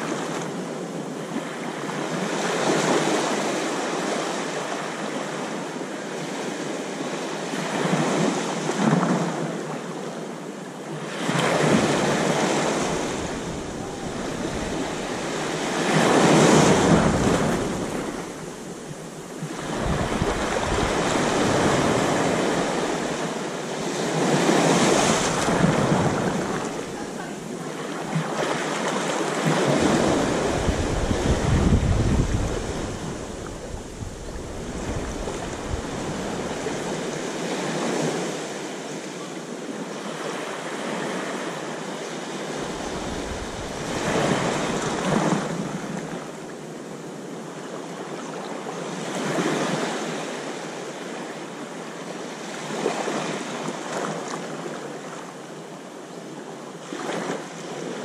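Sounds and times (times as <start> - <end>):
small waves washing on sand: 0.0 - 58.0.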